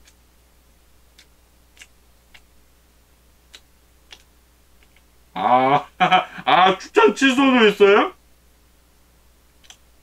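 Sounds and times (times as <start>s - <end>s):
low steady hum: 0.0s - 10.0s
faint sharp clicks: 3.5s - 5.1s, 9.6s - 9.8s.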